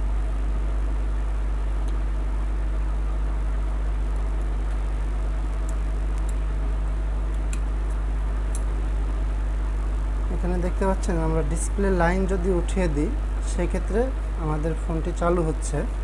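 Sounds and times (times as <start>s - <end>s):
low electrical hum: 0.0s - 16.0s
faint small clicks: 5.5s - 6.4s, 7.3s - 8.7s.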